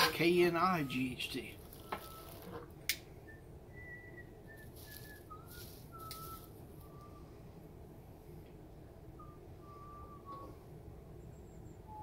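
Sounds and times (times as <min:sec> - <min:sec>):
person whistling: 0:03.2 - 0:07.3, 0:09.2 - 0:10.6.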